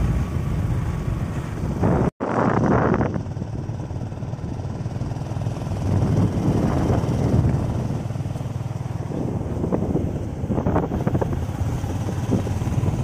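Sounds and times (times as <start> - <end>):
road noise: 0.0 - 13.0
vehicle engine rumble: 0.0 - 13.0.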